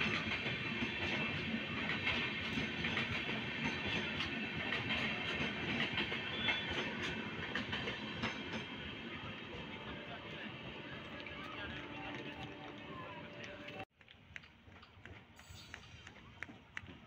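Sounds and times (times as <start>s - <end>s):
train wheels clattering over rail joints: 0.0s - 8.9s.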